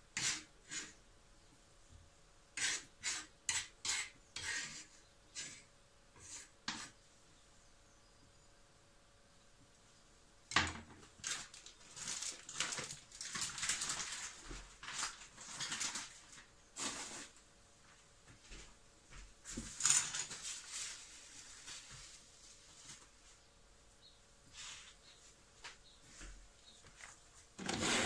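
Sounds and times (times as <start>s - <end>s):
rustling and handling noise: 10.5s - 23.6s, 24.4s - 28.0s.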